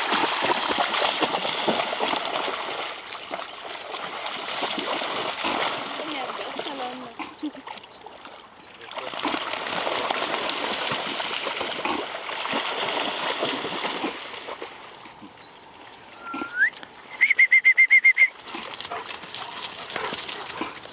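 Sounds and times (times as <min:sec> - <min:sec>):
dogs splashing in water: 0:00.0 - 0:15.3, 0:18.3 - 0:20.9
bird whistle and trill: 0:16.2 - 0:18.3.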